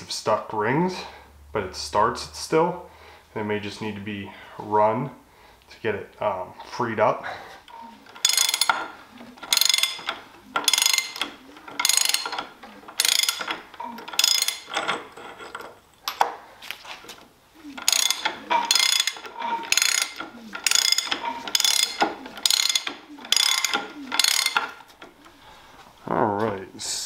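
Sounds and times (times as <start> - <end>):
ratchet wrench clicking: 8.2 - 14.8, 17.8 - 24.8.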